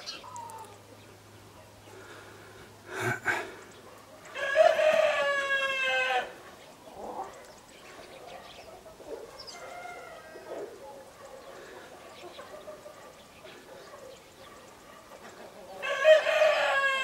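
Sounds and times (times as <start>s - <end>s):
rooster crowing: 4.3s - 6.4s, 9.6s - 10.6s, 15.8s - 17.0s.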